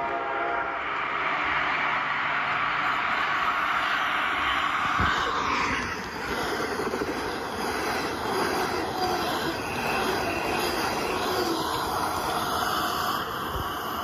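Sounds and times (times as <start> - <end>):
toy train motor whir: 6.0 - 14.0
plastic wheels clicking on track: 6.2 - 12.9.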